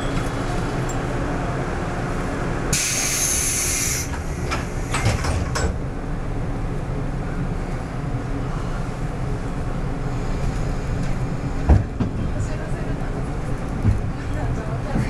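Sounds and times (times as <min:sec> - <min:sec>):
low hum in train car: 0:00.0 - 0:15.0
compressed-air hiss: 0:02.8 - 0:04.1.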